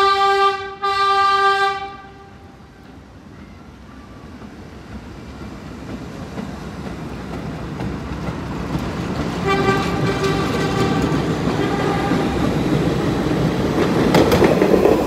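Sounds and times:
train horn: 0:00.0 - 0:02.6, 0:09.4 - 0:12.6
subway train rumble: 0:00.0 - 0:15.0.

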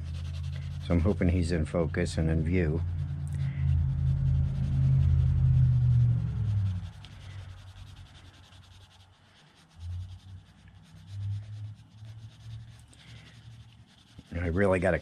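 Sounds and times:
low rumbles: 0:00.0 - 0:08.2
low hum: 0:00.0 - 0:15.0
pencil scratching on paper: 0:00.0 - 0:15.0.

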